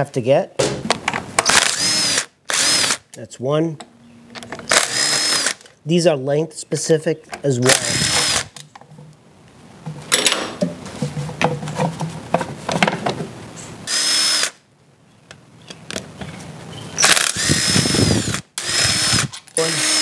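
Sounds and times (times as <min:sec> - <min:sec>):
cordless drill whirring: 0:01.4 - 0:03.0, 0:04.7 - 0:05.7, 0:07.7 - 0:08.5, 0:13.9 - 0:14.6, 0:17.0 - 0:20.0.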